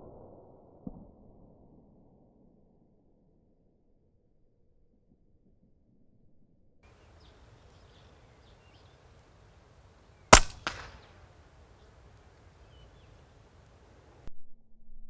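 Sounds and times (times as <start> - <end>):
birds chirping: 6.9 - 14.3
pellet hitting target: 10.3 - 11.2
air rifle shot: 10.3 - 11.4.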